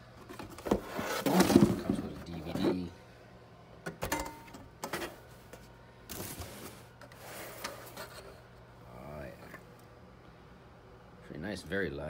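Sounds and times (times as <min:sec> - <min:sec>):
cardboard rustling: 0:00.2 - 0:02.9.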